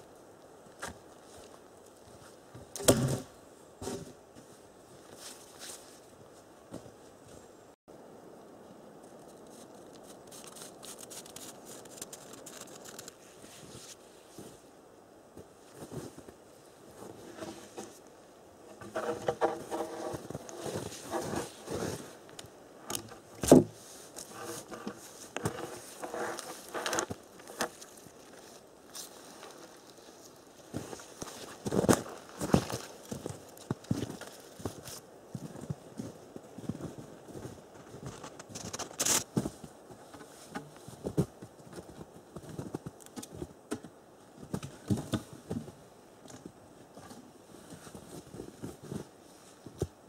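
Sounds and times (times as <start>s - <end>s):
footsteps crunching on forest floor: 3.8s - 7.5s, 18.6s - 45.8s.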